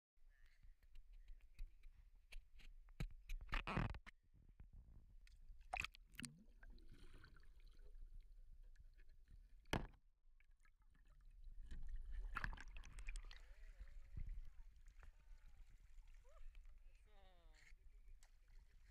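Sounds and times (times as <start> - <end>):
water sloshing and gurgling: 5.6 - 18.9.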